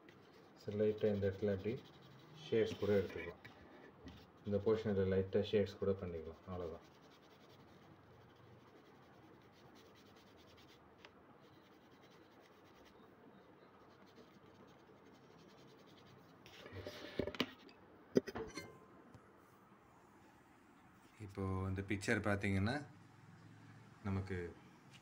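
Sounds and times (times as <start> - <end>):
pencil scratching on paper: 0.0 - 5.1, 5.9 - 13.1, 13.8 - 17.2.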